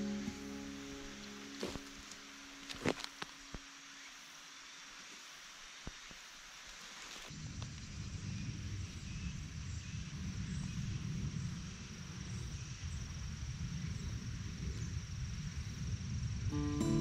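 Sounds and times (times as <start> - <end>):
thin high-pitched tone: 0.0 - 2.4
wind buffeting microphone: 7.4 - 16.8.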